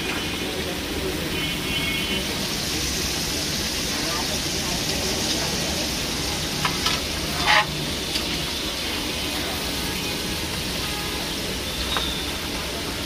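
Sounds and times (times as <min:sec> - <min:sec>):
oil sizzling in deep-frying: 0:00.0 - 0:13.0
metal skimmer clinking on pan: 0:06.6 - 0:08.3.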